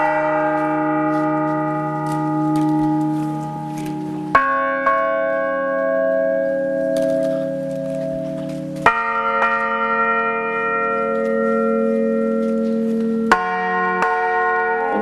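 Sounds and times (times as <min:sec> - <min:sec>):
church bell ringing: 0:00.0 - 0:15.0.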